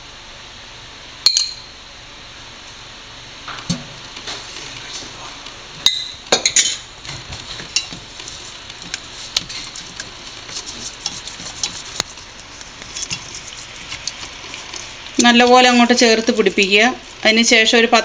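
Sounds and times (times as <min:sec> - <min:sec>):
sharp clinks against bowl: 0:01.3 - 0:01.7
wet squelching stirring: 0:07.1 - 0:17.8.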